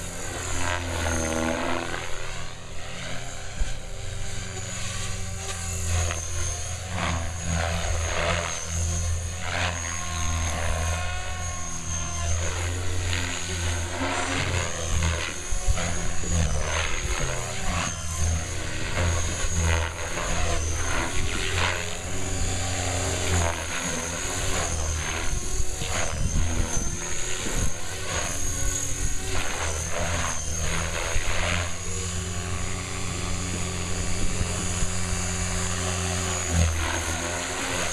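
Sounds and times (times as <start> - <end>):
electric motor whine: 0.0 - 37.9
helicopter rotor blades whooshing: 0.0 - 37.9.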